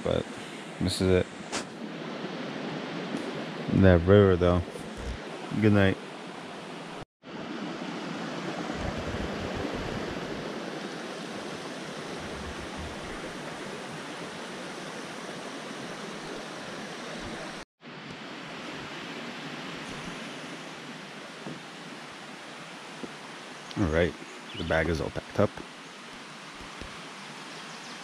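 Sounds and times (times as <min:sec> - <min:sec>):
river rushing: 0:05.2 - 0:24.6.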